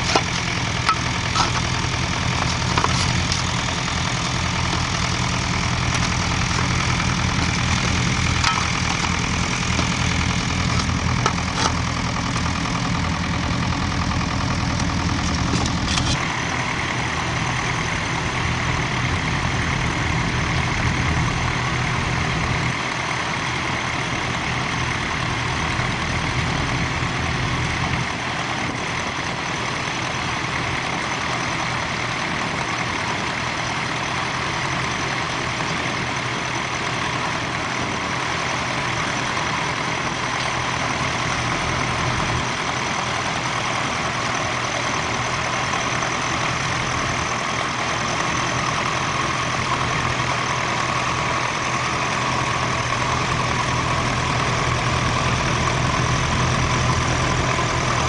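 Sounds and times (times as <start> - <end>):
tractor engine running: 0.0 - 58.0.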